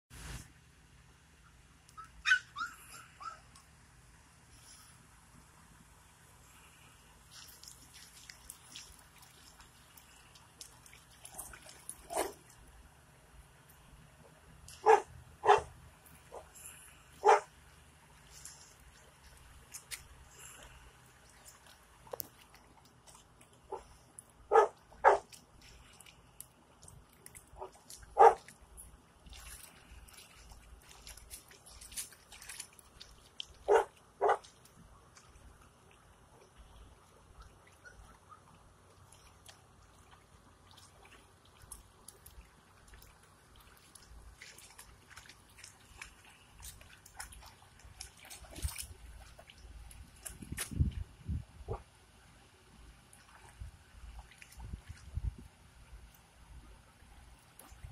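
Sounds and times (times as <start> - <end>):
dogs splashing in shallow water: 1.9 - 57.9
dog barking: 12.1 - 12.4, 14.8 - 15.7, 17.2 - 17.5, 24.5 - 25.3, 27.6 - 28.4, 33.7 - 34.5.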